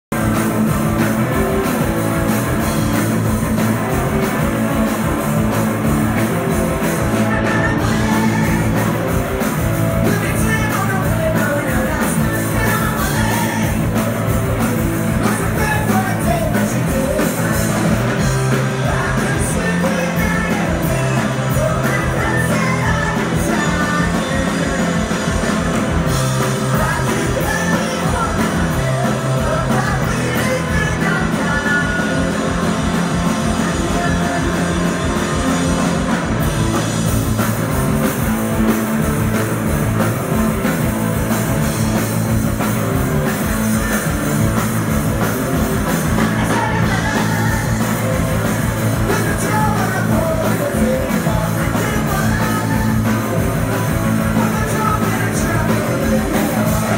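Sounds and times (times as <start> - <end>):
live rock band playing: 0.0 - 56.9
woman singing lead: 7.1 - 9.2, 10.0 - 14.4, 15.2 - 25.3, 26.4 - 35.4, 43.2 - 45.0, 45.9 - 56.9.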